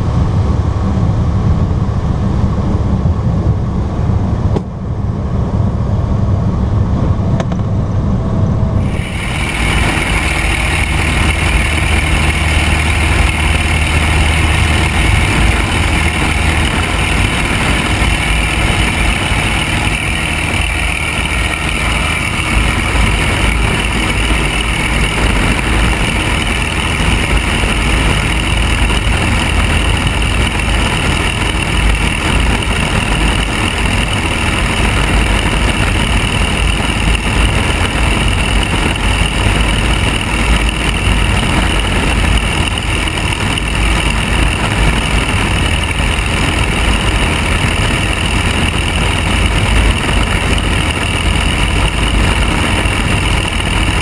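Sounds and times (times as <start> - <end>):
aircraft engine and propeller drone: 0.0 - 54.0.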